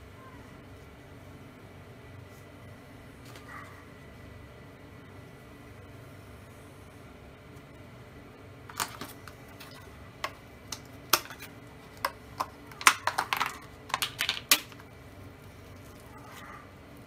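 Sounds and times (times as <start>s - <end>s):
plastic tub crackling and clicking: 8.7s - 14.9s.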